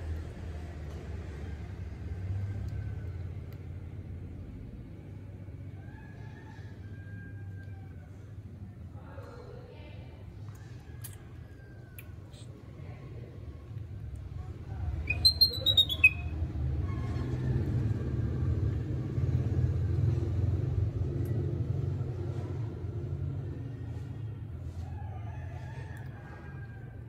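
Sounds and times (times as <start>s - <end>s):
baby monkey squealing: 15.0s - 16.4s.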